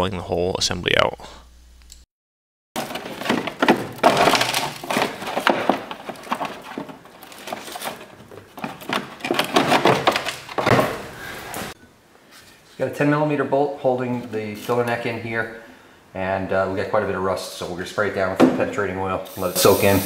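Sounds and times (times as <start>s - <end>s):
plastic liner crackling and scraping: 2.8s - 10.9s.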